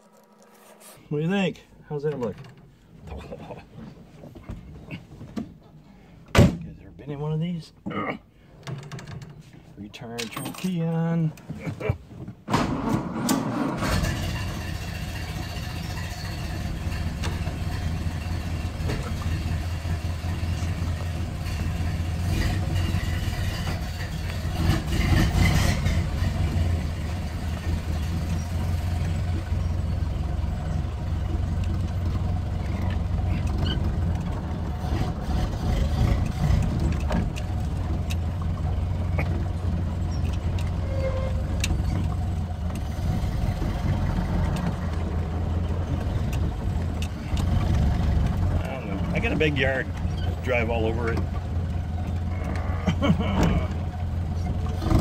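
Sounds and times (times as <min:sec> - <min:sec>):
car engine running: 0:13.8 - 0:55.0.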